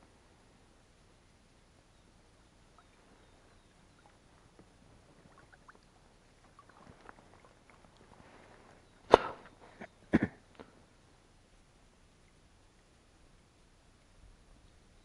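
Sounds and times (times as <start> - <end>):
water drips: 2.6 - 8.8.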